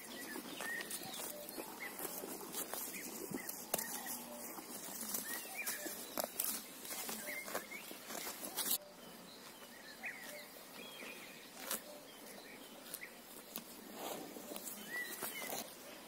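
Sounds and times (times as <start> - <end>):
faint bird chirps: 0.0 - 2.2, 2.8 - 13.2
cow ripping grass: 0.0 - 8.8, 11.3 - 12.0, 12.7 - 16.0.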